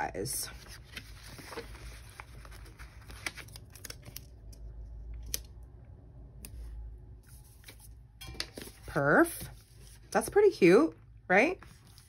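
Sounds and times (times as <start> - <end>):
paper rustling: 0.5 - 4.3, 11.6 - 12.0.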